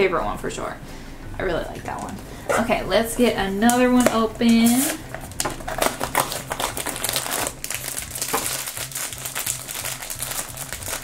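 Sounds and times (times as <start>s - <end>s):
foil bag crinkling: 4.6s - 11.0s.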